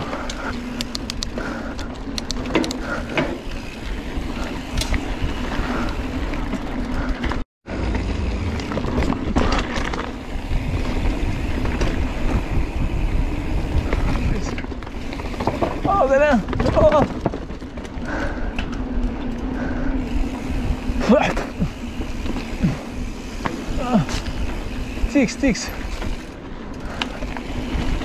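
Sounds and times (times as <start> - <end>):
bike tyre rolling on dirt: 0.0 - 28.0
wind rumble on microphone: 8.4 - 17.4.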